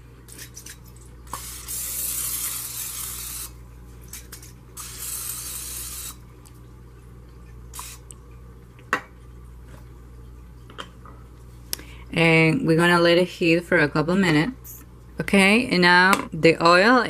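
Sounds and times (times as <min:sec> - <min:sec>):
cooking spray hissing: 0:01.3 - 0:03.6, 0:04.7 - 0:06.2, 0:07.7 - 0:08.1.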